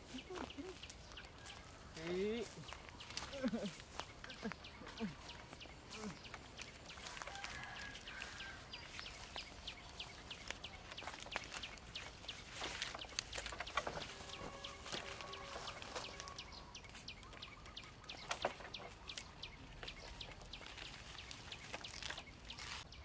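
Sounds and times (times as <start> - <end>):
birds chirping: 0.0 - 23.0.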